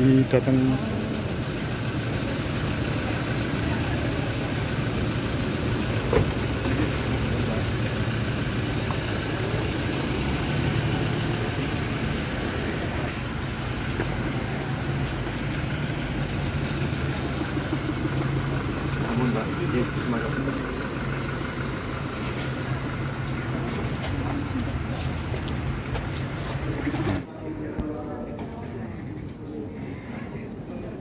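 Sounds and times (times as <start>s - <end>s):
car engines running: 0.0s - 31.0s
car door shutting: 6.0s - 6.6s.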